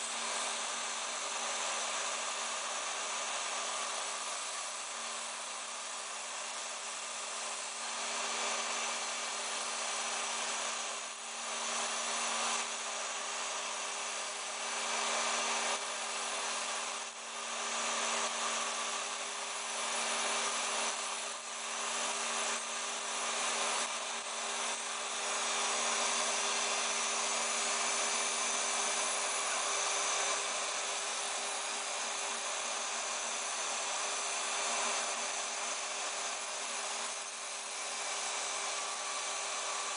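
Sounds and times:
router spindle cutting foam: 0.0 - 39.9
vacuum cleaner hissing: 0.0 - 39.9.

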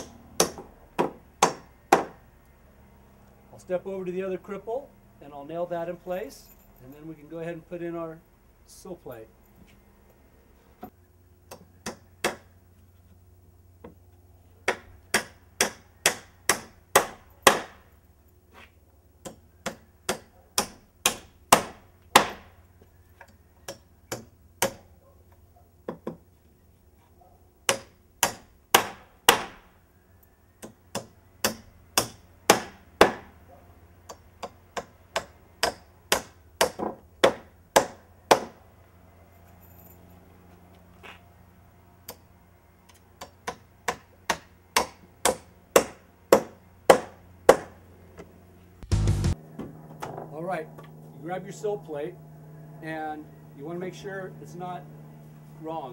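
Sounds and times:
hammer driving nails into wood: 0.0 - 2.2, 11.5 - 12.5, 14.6 - 17.8, 19.2 - 22.5, 23.7 - 24.8, 27.7 - 29.7, 30.6 - 33.3, 34.1 - 38.6, 43.2 - 47.8.

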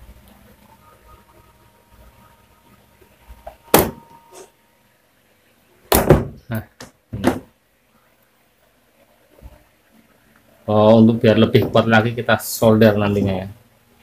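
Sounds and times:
knocks on wooden workbench: 5.9 - 6.4, 7.2 - 7.5.

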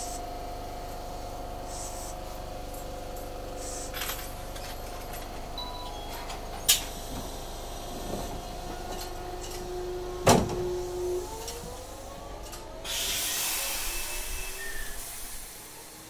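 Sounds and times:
tram motors whining: 2.4 - 16.0
rushing hiss: 12.8 - 16.0.

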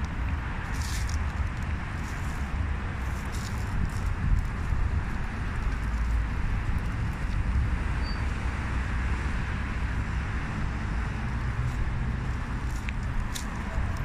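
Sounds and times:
city traffic rumble: 0.0 - 14.0.

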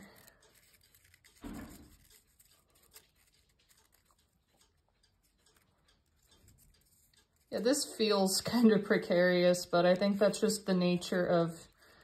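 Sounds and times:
folded paper rustling: 0.0 - 4.2
faint paper clicks: 0.0 - 12.0.

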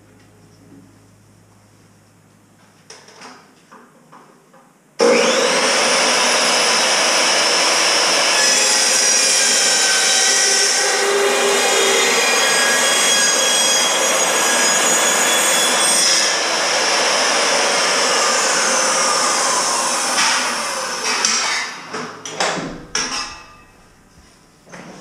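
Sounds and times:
saw blade spinning down: 5.0 - 21.8
chop saw cutting steel: 5.0 - 21.9.

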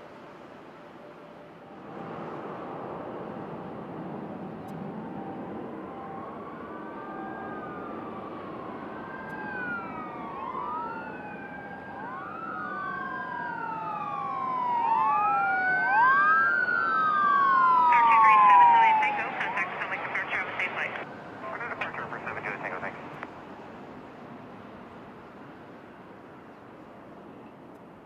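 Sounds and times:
emergency vehicle siren wailing: 3.4 - 23.2.

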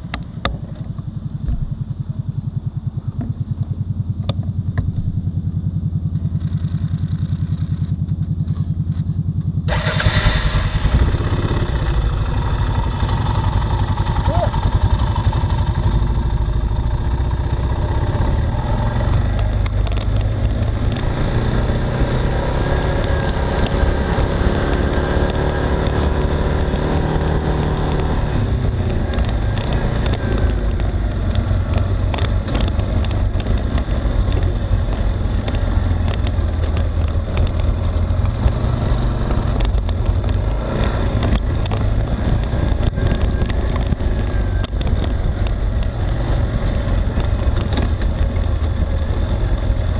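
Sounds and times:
atv engine running: 0.0 - 49.9
knocks and rattles over rocks: 28.7 - 49.9.

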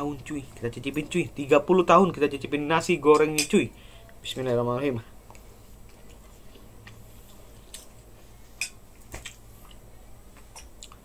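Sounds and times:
low room hum: 0.0 - 11.0
man chewing food: 5.2 - 11.0.

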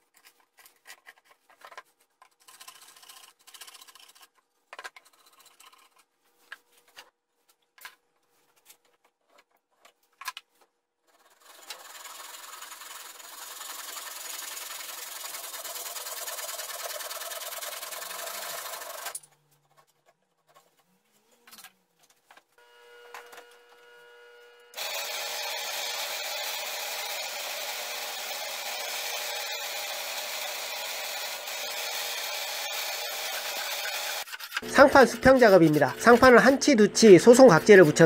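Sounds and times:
hand saw cutting wood: 11.1 - 19.2, 24.8 - 38.0
hand tool rasping on wood: 11.1 - 19.2, 25.3 - 38.0.

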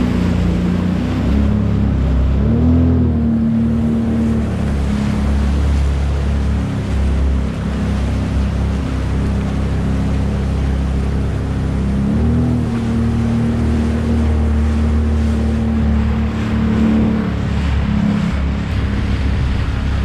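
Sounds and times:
jet ski engine running: 0.0 - 20.0
water slapping against hull: 0.0 - 20.0.

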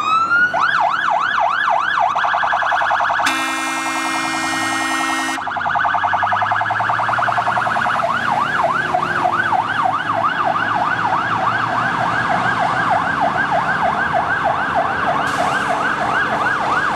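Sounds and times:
fire truck siren wailing: 0.0 - 16.9
horn blast: 3.2 - 5.5.

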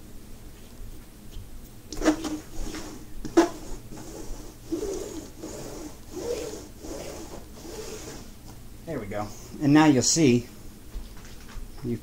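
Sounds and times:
lint roller rasping: 1.9 - 8.4.

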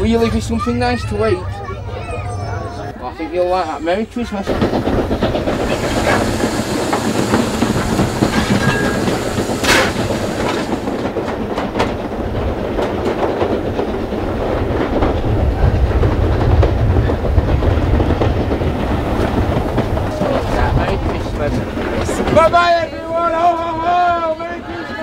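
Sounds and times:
train carriage rumbling on track: 0.0 - 25.0
brief steam hiss: 5.6 - 10.8.

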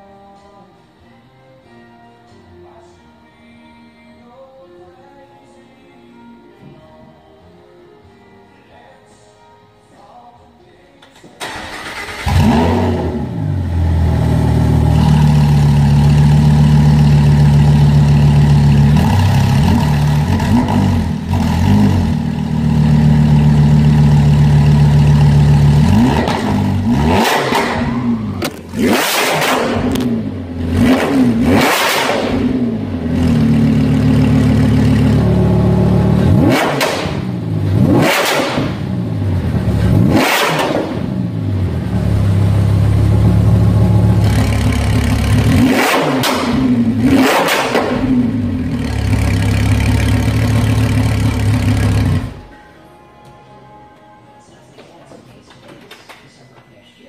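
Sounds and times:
car engine idling: 11.4 - 31.4, 32.4 - 37.8, 41.0 - 47.2, 47.9 - 52.6
engine revving in throttle blips: 11.8 - 52.5.

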